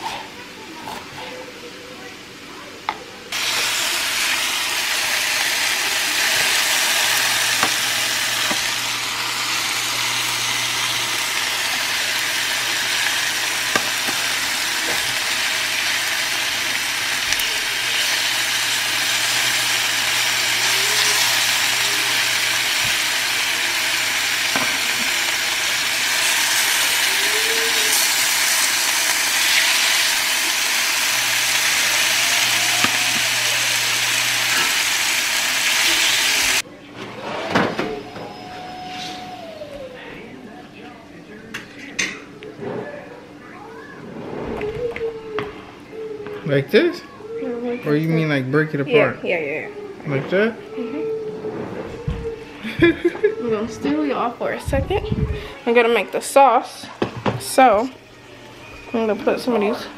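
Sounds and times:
meat sizzling in a skillet: 0:03.4 - 0:36.6.

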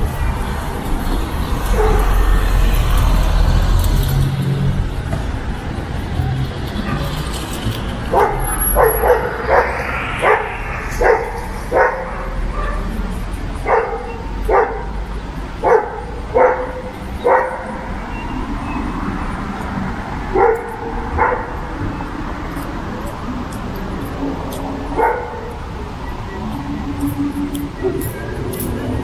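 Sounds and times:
dog barking: 0:01.7 - 0:02.4, 0:06.8 - 0:07.2, 0:08.1 - 0:13.0, 0:13.6 - 0:15.0, 0:15.6 - 0:17.8, 0:20.3 - 0:21.6, 0:24.9 - 0:25.6.

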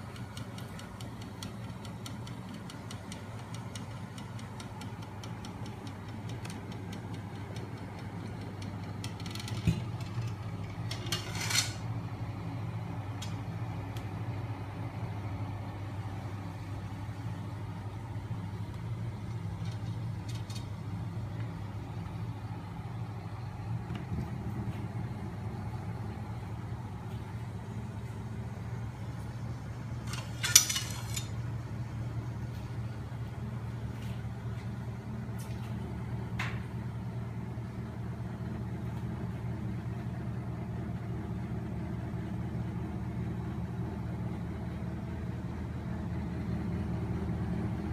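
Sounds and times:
machine humming: 0:00.0 - 0:47.9
metallic clattering: 0:30.0 - 0:31.4.

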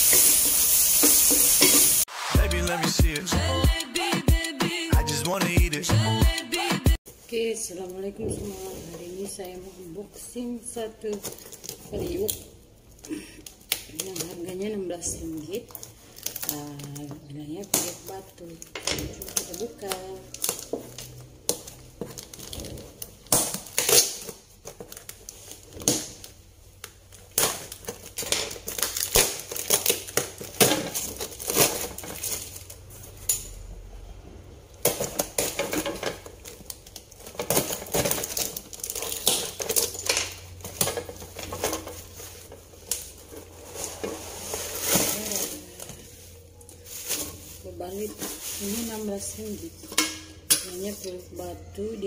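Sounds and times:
cardboard and plastic crinkling: 0:13.5 - 0:33.2, 0:34.8 - 0:49.7
packing tape ripping off box: 0:19.2 - 0:32.7, 0:34.8 - 0:45.9.

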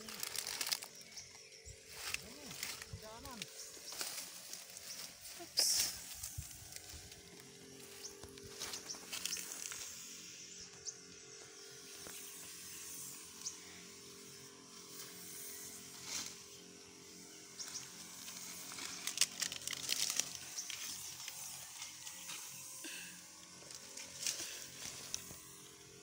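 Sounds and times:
footsteps crunching dry leaves: 0:00.0 - 0:10.4, 0:17.6 - 0:25.7
steady low hum: 0:00.0 - 0:26.0
sprayer hissing: 0:02.0 - 0:26.0.

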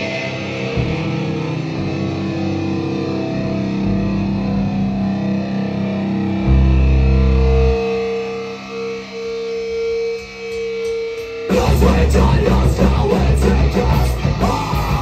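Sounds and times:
live rock band playing: 0:11.4 - 0:15.0.

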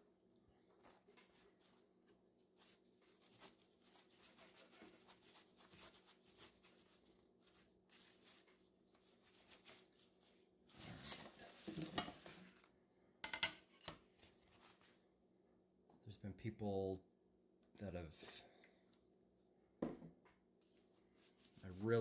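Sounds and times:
paper towel rubbing on glass: 0:02.6 - 0:10.2, 0:21.0 - 0:22.0.

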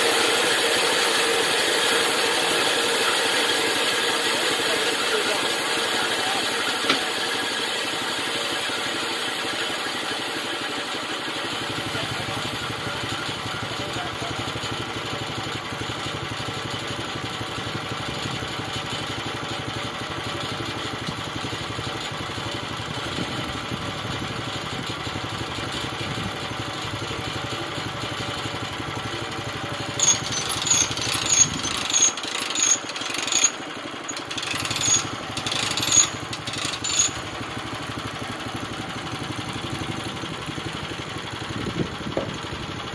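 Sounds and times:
small sawmill engine running: 0:00.0 - 0:42.9
sharp knocks and clatter: 0:06.8 - 0:07.4.

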